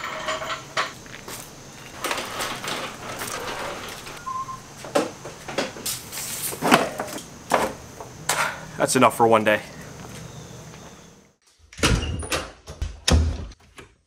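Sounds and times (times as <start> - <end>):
equipment knocking and clattering: 0.0 - 5.8
footsteps: 0.9 - 6.6.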